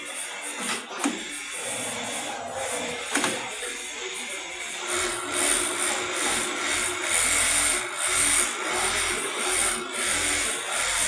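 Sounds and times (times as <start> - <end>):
sewing machine stitching: 0.4 - 3.6.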